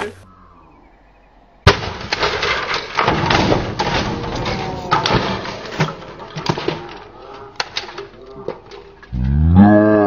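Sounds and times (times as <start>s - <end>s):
debris thudding and clattering: 1.7s - 9.1s.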